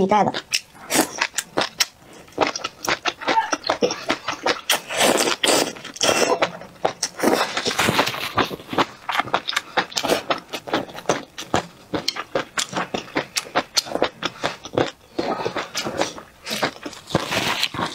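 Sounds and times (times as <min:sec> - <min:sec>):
crunchy chewing: 0:00.3 - 0:17.9
slurping: 0:00.5 - 0:11.2, 0:12.0 - 0:17.9.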